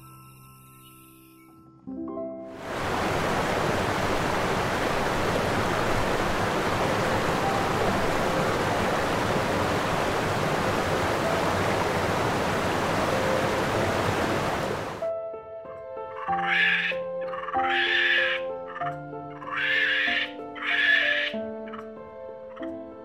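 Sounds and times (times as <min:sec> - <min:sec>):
water rushing: 0:02.6 - 0:15.0.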